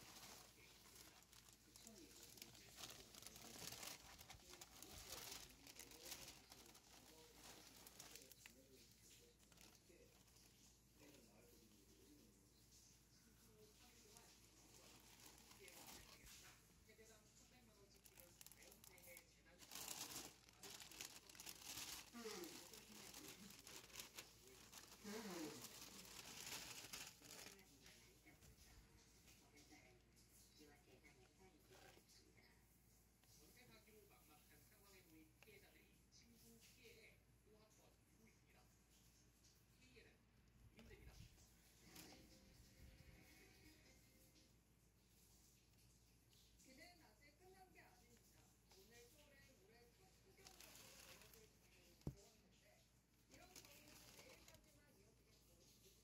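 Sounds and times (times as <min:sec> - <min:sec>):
packaging crinkling and rustling: 0:00.0 - 0:11.3, 0:14.0 - 0:16.6, 0:17.7 - 0:28.4, 0:50.3 - 0:52.2, 0:53.3 - 0:54.7
quiet voice: 0:00.0 - 0:39.0, 0:39.6 - 0:44.5.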